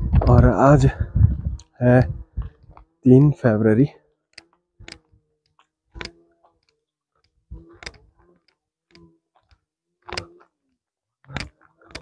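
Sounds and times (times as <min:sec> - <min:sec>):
quiet sharp clicks: 0:04.3 - 0:10.6, 0:11.2 - 0:12.0.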